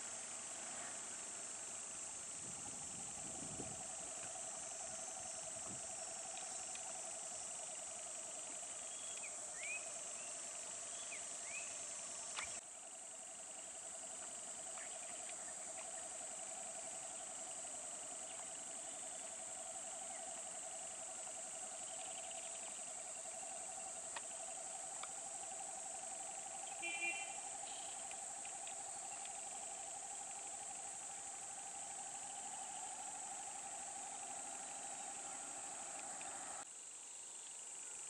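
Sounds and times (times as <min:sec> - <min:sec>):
insects hissing and trilling: 0:00.0 - 0:38.0.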